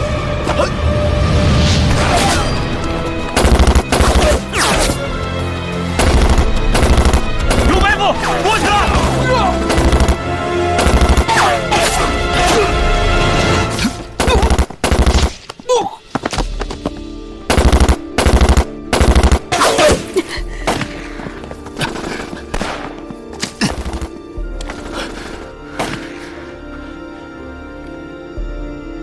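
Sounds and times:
dramatic background music: 0:00.0 - 0:29.0
automatic gunfire bursts: 0:06.0 - 0:07.7.

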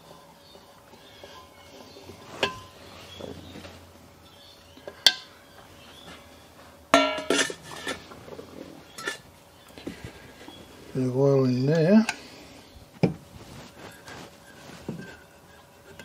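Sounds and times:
sharp knocks of metal parts: 0:06.9 - 0:07.6
metal clattering set down: 0:07.0 - 0:08.0.

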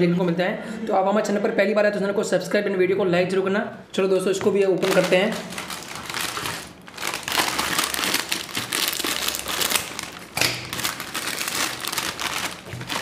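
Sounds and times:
scissors cutting packet: 0:04.8 - 0:13.0
snack packet crinkling: 0:04.8 - 0:13.0.

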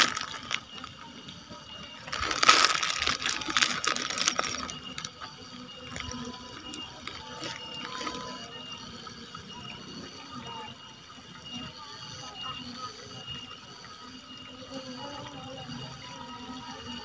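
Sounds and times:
fishing tackle rustling: 0:00.0 - 0:01.0, 0:02.0 - 0:08.4.

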